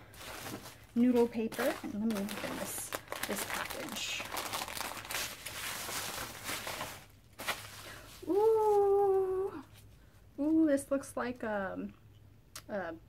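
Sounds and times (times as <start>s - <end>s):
paper wrapping crinkling and tearing: 0.0s - 9.4s
woman saying ooh: 8.3s - 9.7s.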